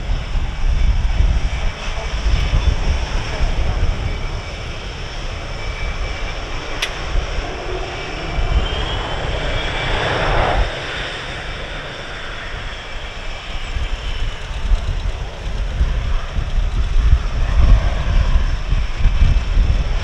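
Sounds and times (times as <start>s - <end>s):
jet engine whine: 0.0s - 20.0s
steady low rumble: 0.0s - 20.0s
sharp click: 6.8s - 7.1s.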